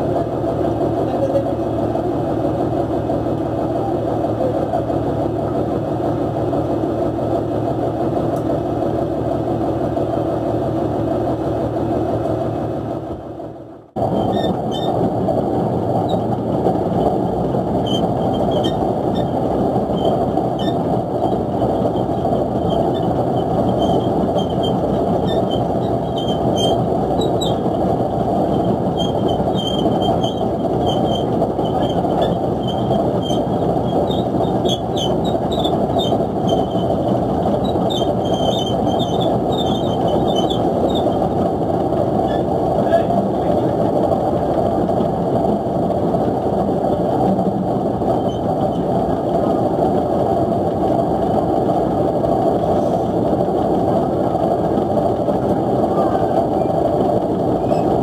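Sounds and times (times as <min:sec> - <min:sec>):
boat engine and deck machinery: 0:00.0 - 0:58.0
high-pitched squeaks: 0:22.0 - 0:27.6, 0:28.5 - 0:41.2, 0:57.6 - 0:58.0.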